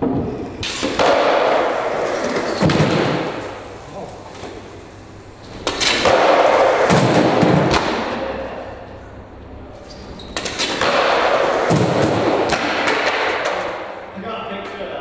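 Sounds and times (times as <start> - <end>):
skateboard clacks and thuds: 0.0 - 3.4, 10.6 - 13.9
skateboard wheels rolling on concrete: 0.0 - 8.3, 10.4 - 13.9.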